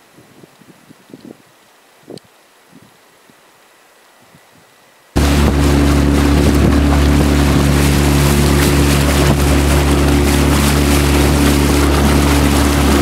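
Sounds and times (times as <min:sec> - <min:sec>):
wind and water rushing: 0:00.0 - 0:13.0
outboard motor running: 0:05.2 - 0:13.0.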